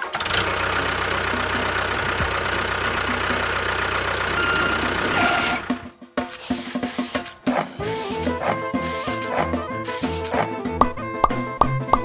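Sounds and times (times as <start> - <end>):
engine idling: 0.0 - 5.8.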